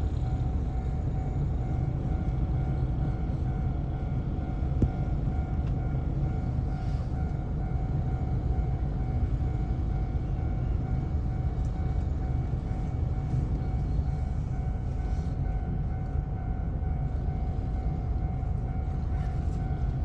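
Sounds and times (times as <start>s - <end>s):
constant hum: 0.0s - 20.0s
low rumble inside streetcar: 0.0s - 20.0s.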